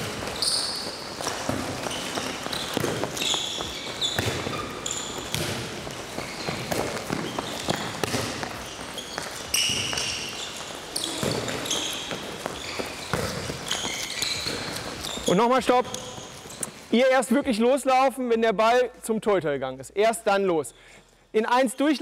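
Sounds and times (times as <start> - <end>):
balls knocking and bouncing: 0.0 - 16.8
shoes squeaking on court floor: 0.0 - 17.0.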